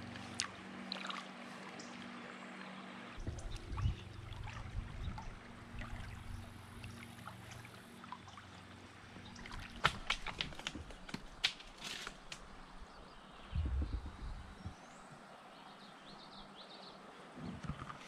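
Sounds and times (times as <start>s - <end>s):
sharp ticks and small splashes: 0.0s - 12.6s
water lapping at hull: 0.0s - 18.0s.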